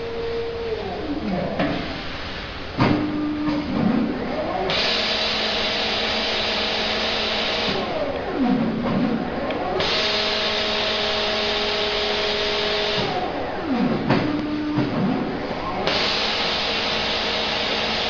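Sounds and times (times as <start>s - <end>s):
motor whine changing pitch: 0.0s - 2.2s
steady machine whine: 0.0s - 18.0s.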